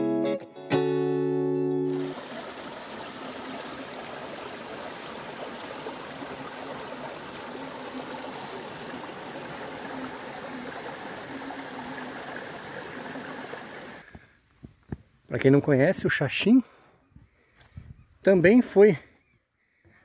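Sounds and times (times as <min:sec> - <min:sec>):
stream flowing over rocks: 0:01.9 - 0:14.0.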